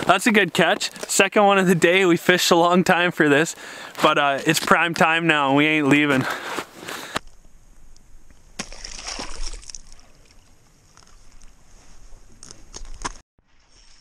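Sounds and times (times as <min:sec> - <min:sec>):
fish splashing into water: 0:08.6 - 0:10.4.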